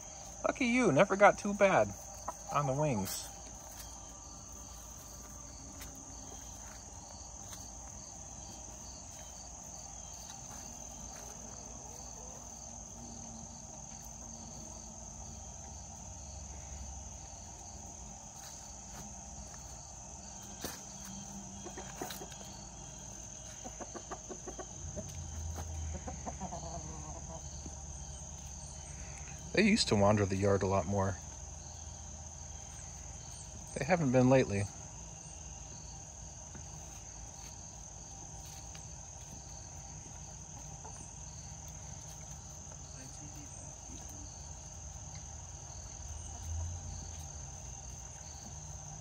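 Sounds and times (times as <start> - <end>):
hens clucking: 0.0 - 14.4, 20.4 - 28.6
crickets chirping: 0.0 - 49.0
high insect trill: 0.0 - 49.0.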